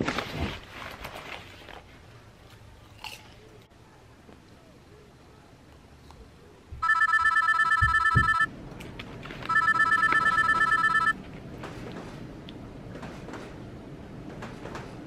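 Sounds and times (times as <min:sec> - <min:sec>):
mobile phone ringing: 0:06.8 - 0:08.5, 0:09.5 - 0:11.2.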